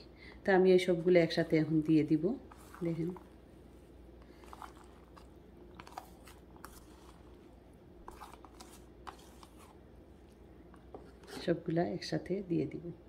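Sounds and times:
fingers scraping food from tub: 4.3s - 7.4s, 8.0s - 9.8s.

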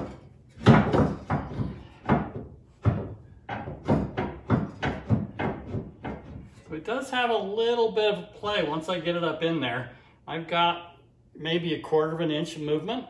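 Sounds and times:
metal bracket knocking on frame: 0.0s - 6.6s.

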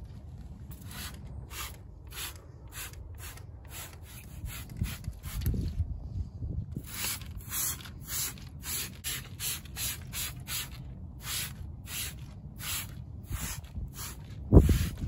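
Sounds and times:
wind rumble on microphone: 0.0s - 8.9s, 11.8s - 15.0s
spray bottle squirting: 0.7s - 5.6s, 6.8s - 15.0s.

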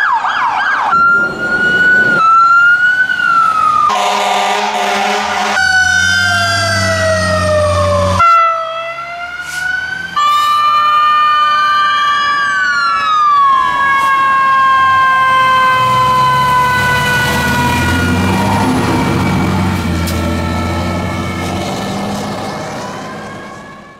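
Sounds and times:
fire truck sirens wailing: 0.0s - 23.9s
heavy truck engine rumbling: 0.8s - 23.9s.

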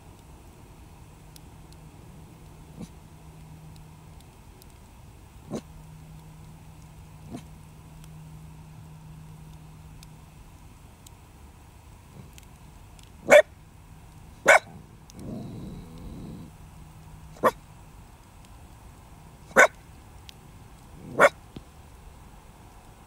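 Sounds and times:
campfire crackling: 0.0s - 23.0s
dog barking: 13.3s - 13.5s, 14.4s - 14.8s, 17.4s - 17.6s, 19.5s - 19.7s, 21.1s - 21.4s
dog growling: 14.6s - 16.6s, 21.0s - 21.3s.

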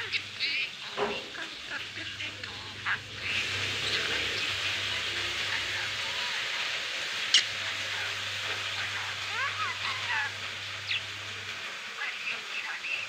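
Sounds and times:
background hiss: 0.0s - 13.0s
budgerigar chirping: 7.2s - 11.2s.

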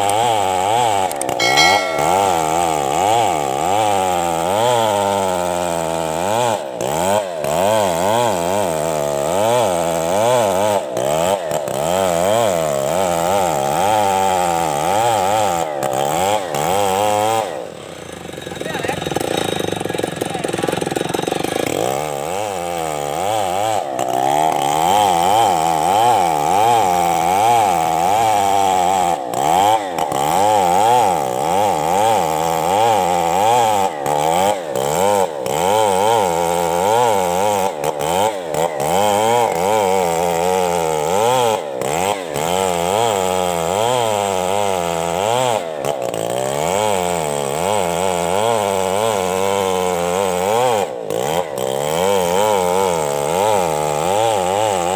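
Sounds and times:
chainsaw cutting through wood: 20.2s - 54.9s.

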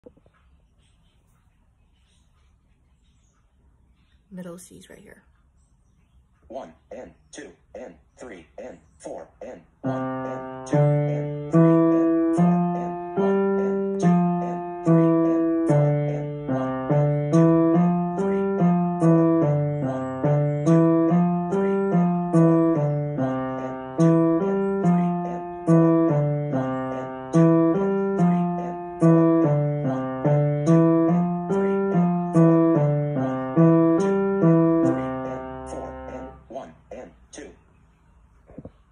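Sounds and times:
piano playing rhythmic piece: 9.8s - 36.4s.

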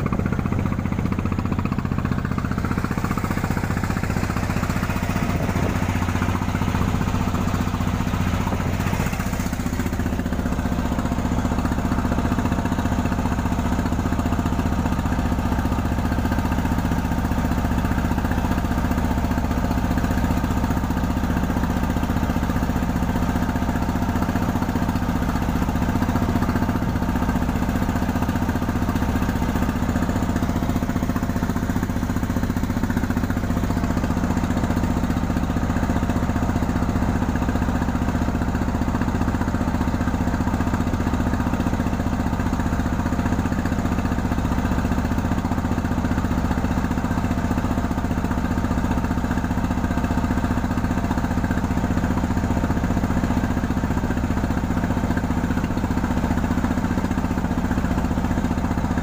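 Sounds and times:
diesel boat engine running: 0.0s - 59.0s
water rushing along hull: 0.0s - 59.0s.

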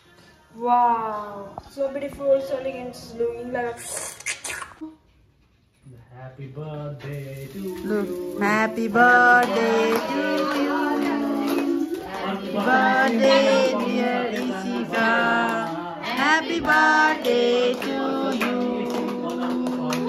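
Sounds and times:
song with singing voices: 7.6s - 20.0s.

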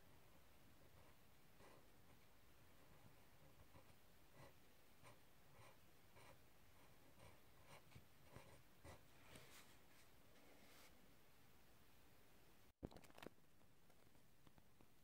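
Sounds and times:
pen scratching on paper: 2.9s - 9.0s.

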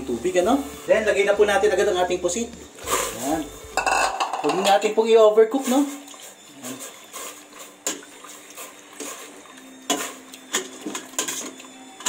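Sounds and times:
ladle clinking against pot: 3.8s - 4.9s.

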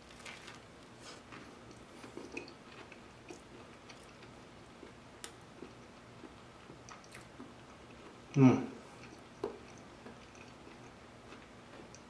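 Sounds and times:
person chewing: 0.2s - 12.0s.

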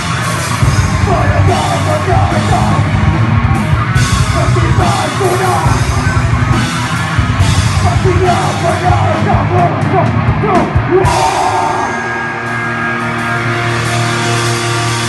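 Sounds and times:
heavy metal band playing live: 0.0s - 15.0s.

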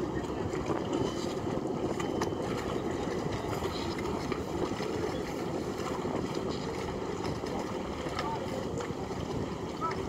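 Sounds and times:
boat motor rumble: 0.0s - 10.0s
churning water: 0.0s - 10.0s.

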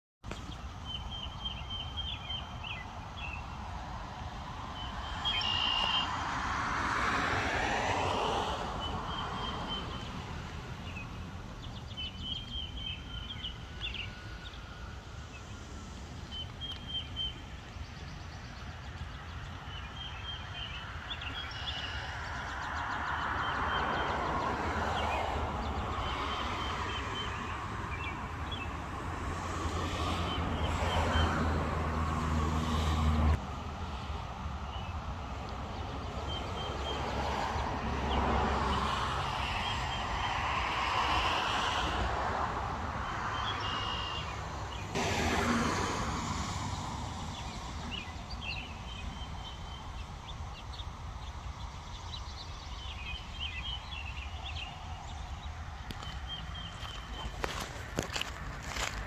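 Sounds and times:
cars passing on road: 0.2s - 59.0s
small birds chirping: 0.3s - 3.7s, 4.4s - 6.2s, 8.7s - 28.9s, 46.8s - 59.0s.

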